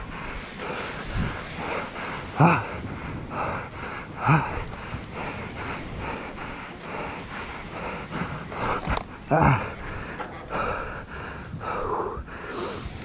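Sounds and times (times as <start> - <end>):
person panting heavily: 0.0 - 13.0
person grunting: 2.4 - 2.8, 9.2 - 9.8.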